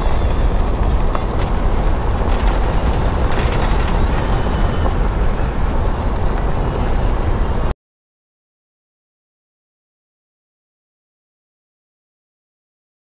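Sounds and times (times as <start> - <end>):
vehicle rumbling on dirt road: 0.0 - 7.7.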